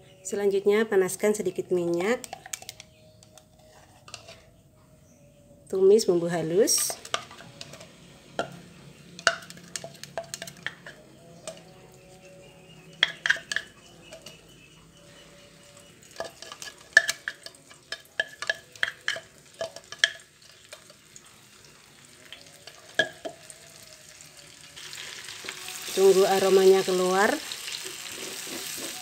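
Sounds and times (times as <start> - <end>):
spice paste sizzling in oil: 12.8 - 29.0.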